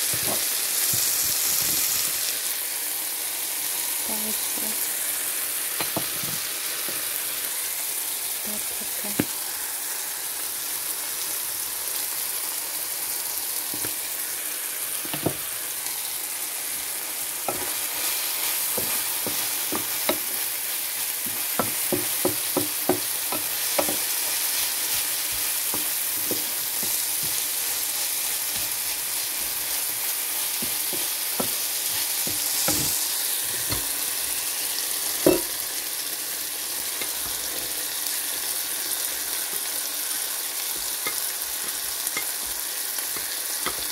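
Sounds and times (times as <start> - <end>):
vegetables sizzling in oil: 0.0 - 43.9
wooden spatula knocking on pan: 15.1 - 15.4, 18.8 - 20.3, 21.2 - 24.1, 30.6 - 31.6, 32.2 - 33.0, 35.2 - 35.5.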